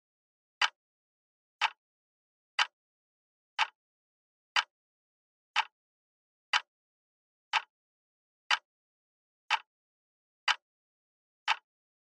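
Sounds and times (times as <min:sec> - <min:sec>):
clock ticking: 0:01.6 - 0:01.8, 0:02.6 - 0:02.8, 0:03.6 - 0:03.8, 0:05.5 - 0:05.8, 0:06.5 - 0:06.7, 0:07.5 - 0:07.7, 0:08.5 - 0:08.7, 0:09.5 - 0:09.7, 0:10.5 - 0:10.7, 0:11.5 - 0:11.7.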